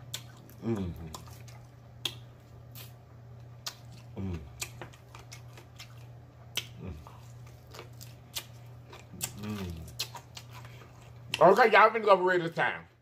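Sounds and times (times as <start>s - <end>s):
lip smacking and chewing: 0.0s - 11.4s
steady low hum: 0.0s - 13.0s
person humming with pleasure: 0.6s - 1.1s, 4.2s - 4.6s, 6.8s - 7.1s, 9.3s - 9.9s.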